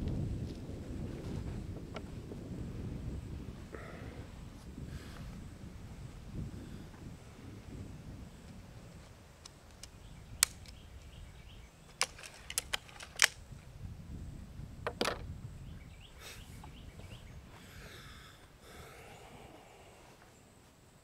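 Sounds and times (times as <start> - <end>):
air rifle cocking clicks: 9.4 - 11.1, 11.9 - 13.4.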